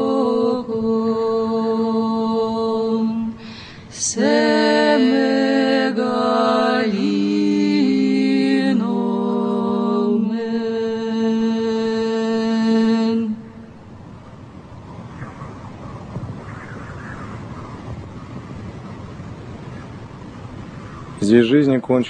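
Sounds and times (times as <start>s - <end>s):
unaccompanied choral chant: 0.0s - 14.0s.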